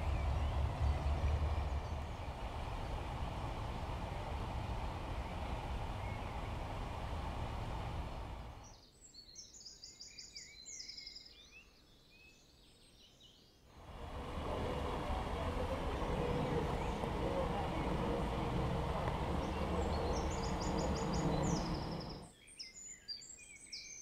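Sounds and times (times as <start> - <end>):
low rushing outdoor noise: 0.0 - 8.7, 13.8 - 22.3
small birds chirping: 0.0 - 8.8, 13.8 - 22.3.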